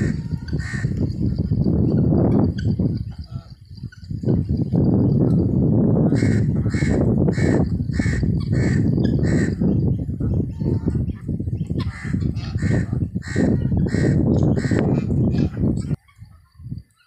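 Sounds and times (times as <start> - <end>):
poultry calling: 0.0 - 4.1, 6.0 - 9.8, 11.7 - 16.6.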